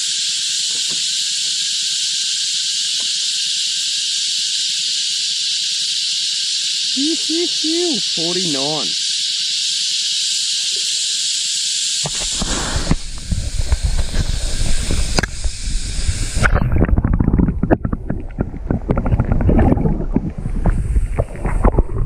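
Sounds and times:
steady high hiss: 0.0s - 17.0s
underwater sloshing and gurgling: 12.2s - 22.0s.

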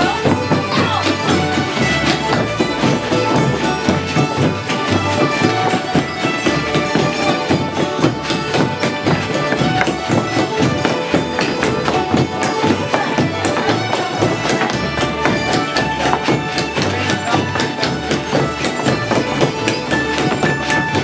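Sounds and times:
fiddle dance tune with string band: 0.0s - 21.0s
shoes tapping and shuffling on floor: 0.0s - 21.0s.

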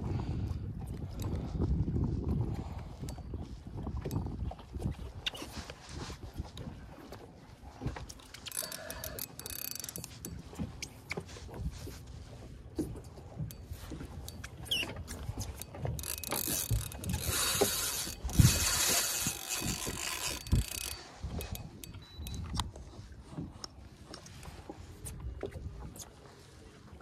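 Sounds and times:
reel drag buzzing: 7.8s - 22.8s
fishing reel clicking: 8.3s - 10.9s, 14.0s - 22.7s.

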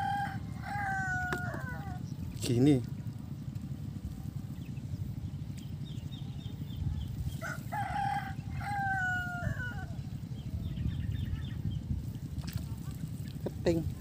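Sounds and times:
rooster crowing: 0.0s - 2.0s, 7.4s - 10.0s
steady low rumble: 0.0s - 14.0s.

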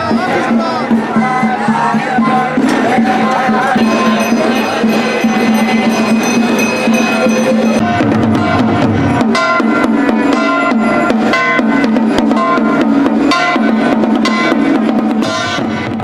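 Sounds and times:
voices chanting: 0.0s - 12.0s
drums beating: 0.0s - 16.0s.

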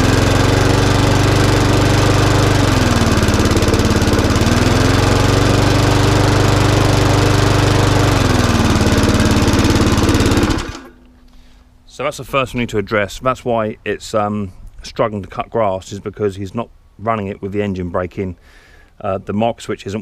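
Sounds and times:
lawnmower engine revving: 0.0s - 11.1s.

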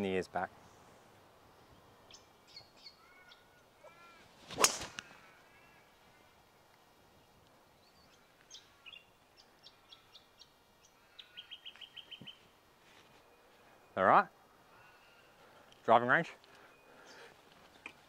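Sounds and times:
birds chirping: 0.0s - 18.0s
golf club striking ball: 4.5s - 5.0s.

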